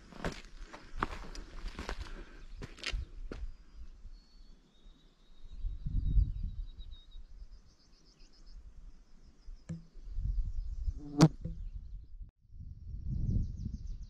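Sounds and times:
footsteps on forest trail: 0.0s - 3.6s.

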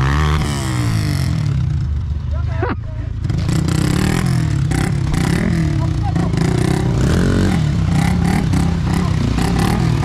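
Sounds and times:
motorcycle engines revving: 0.0s - 10.0s.

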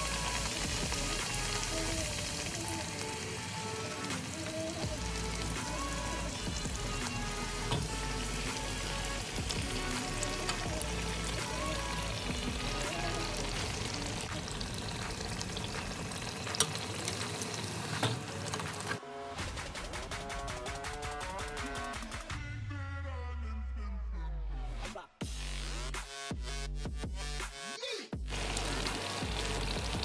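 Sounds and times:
flatbread frying in hot oil: 0.0s - 19.0s, 28.3s - 30.0s
background music: 0.0s - 30.0s.

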